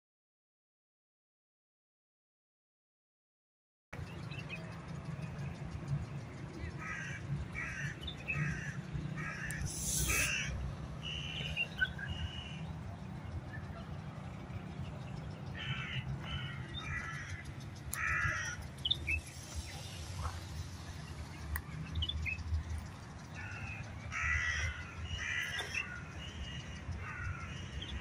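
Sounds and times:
bird rough repeated calls: 6.8 - 10.6, 15.6 - 20.6.

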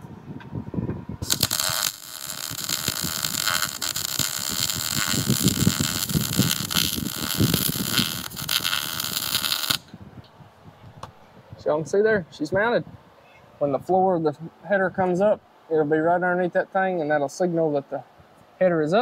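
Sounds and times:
arc welder hissing: 1.2 - 9.9.

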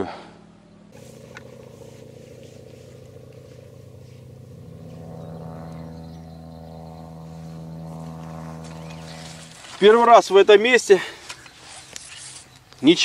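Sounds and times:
engine running steadily: 0.9 - 10.0.

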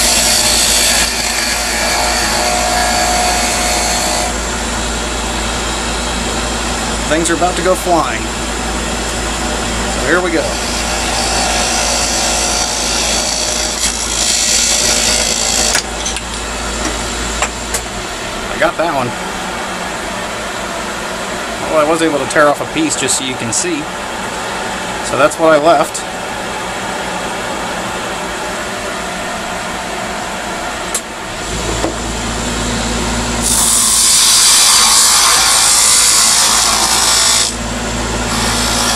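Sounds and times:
chisel scraping on wood lathe: 0.0 - 4.4, 10.4 - 15.8, 33.4 - 37.6, 38.3 - 38.9
lathe low hum: 0.0 - 25.0, 26.0 - 38.9.

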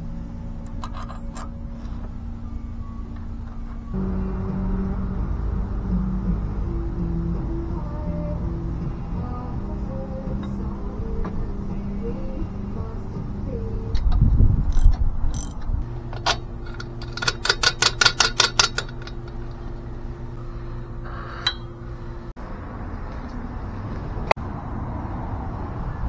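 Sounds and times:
steady low hum: 0.0 - 25.0
tool clicks: 14.0 - 19.4.

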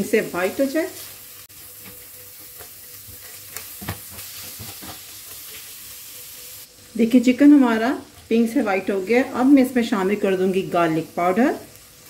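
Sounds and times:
chicken and onion sizzling in pan: 0.0 - 12.0
spatula scraping and knocking pan: 1.8 - 5.8.

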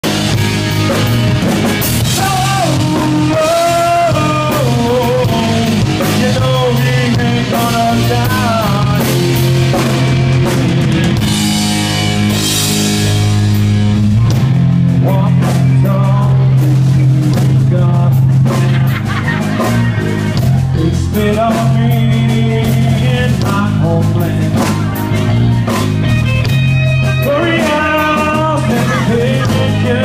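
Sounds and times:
drum kit: 0.0 - 30.0
guitar: 0.0 - 30.0
person singing: 2.0 - 11.4, 15.0 - 25.8, 26.9 - 30.0.

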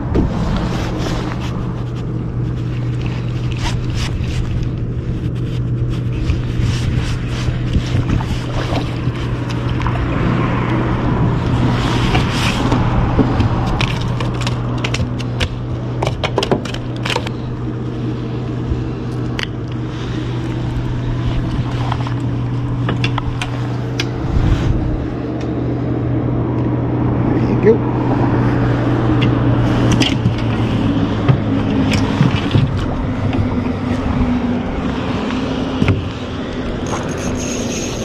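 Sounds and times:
boat motor hum: 0.0 - 38.0
clicks and crackles: 12.1 - 17.5.

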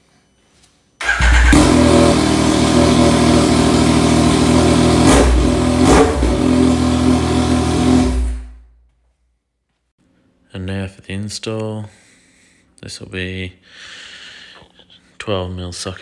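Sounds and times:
loud motorcycle engine running: 1.0 - 8.6.

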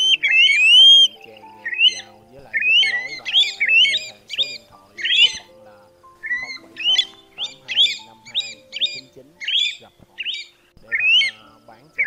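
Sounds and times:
plover whistled calls: 0.0 - 12.0
soft background music: 0.0 - 12.0.

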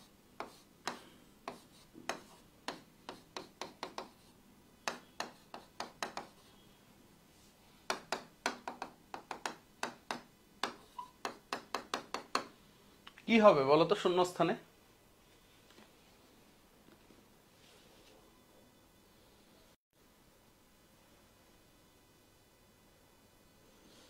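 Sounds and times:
pen clicking on writing board: 0.4 - 4.3, 4.9 - 6.4, 7.9 - 12.5.

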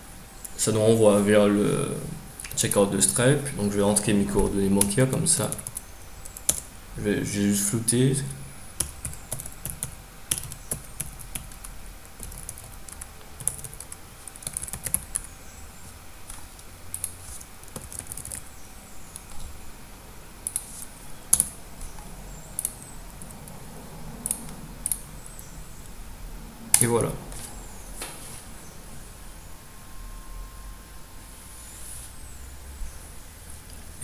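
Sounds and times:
keyboard typing clicks: 8.8 - 15.3, 24.2 - 25.0.

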